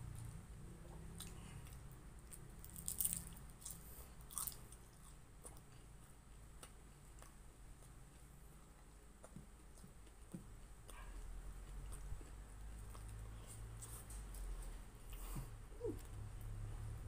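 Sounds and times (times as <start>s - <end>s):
soft chewing: 0.0s - 17.0s
crunching bites: 2.3s - 5.0s.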